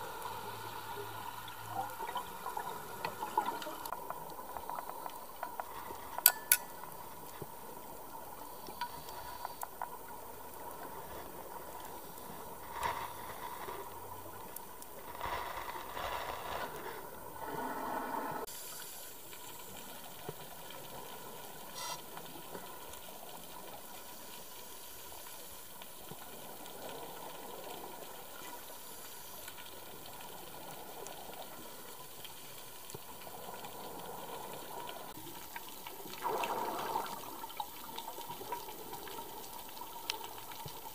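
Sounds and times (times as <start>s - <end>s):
faint constant tone: 0.0s - 40.9s
steady underwater hiss: 0.0s - 40.9s
scuba exhaust bubbles: 33.2s - 39.5s.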